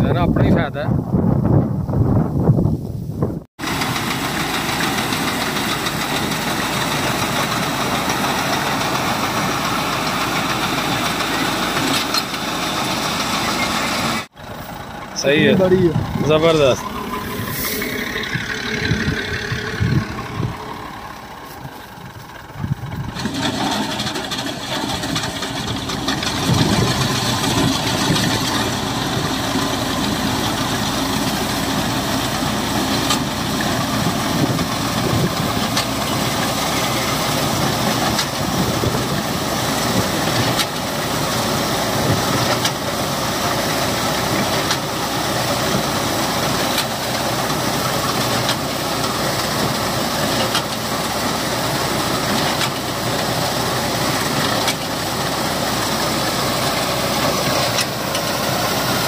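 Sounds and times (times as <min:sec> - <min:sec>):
reaper machine mechanical rattle: 0:03.6 - 0:42.9, 0:43.7 - 0:59.0
tractor engine running: 0:03.6 - 0:59.0.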